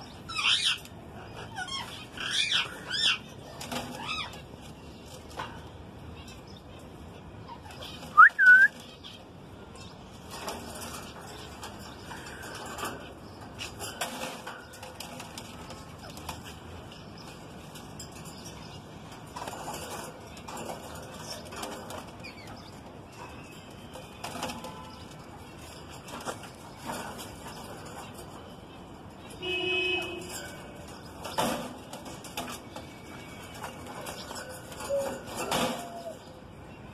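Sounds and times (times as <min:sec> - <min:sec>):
bird rustling and fluttering: 0:10.2 - 0:28.4.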